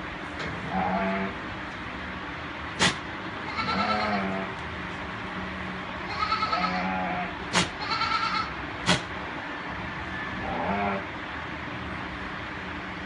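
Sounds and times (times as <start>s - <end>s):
goat bleating: 3.4s - 4.6s, 6.0s - 8.6s.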